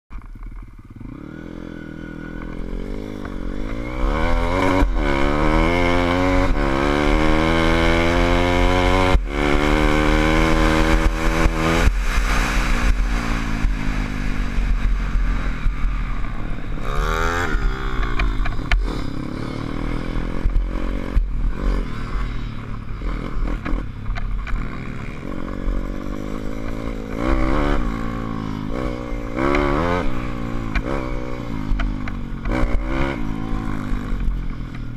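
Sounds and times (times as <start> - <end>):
motorcycle engine revving: 0.1 - 34.9
wind rumbling on microphone: 2.2 - 29.4.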